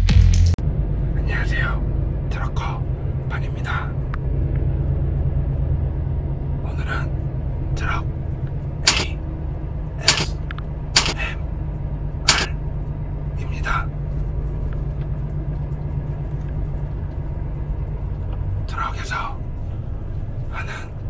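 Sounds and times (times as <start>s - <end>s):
road noise inside cab: 0.6s - 21.0s
truck engine drone: 0.6s - 21.0s
brief sharp sounds: 8.9s - 9.2s, 10.0s - 10.4s, 11.0s - 11.3s, 12.3s - 12.5s.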